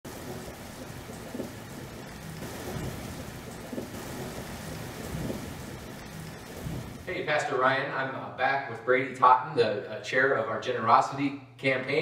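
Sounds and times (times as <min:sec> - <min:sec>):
steady rushing crackling noise: 0:00.0 - 0:08.0.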